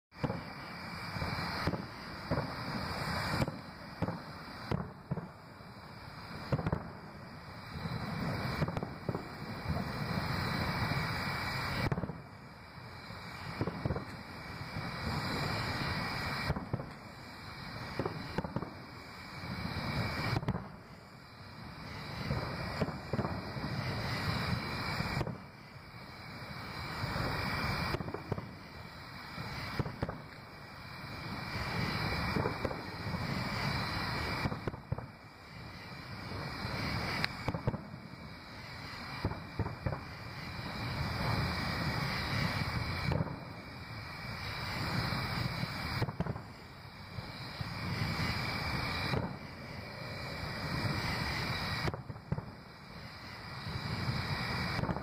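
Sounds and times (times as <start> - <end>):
distant fireworks booming: 0.1 - 55.0.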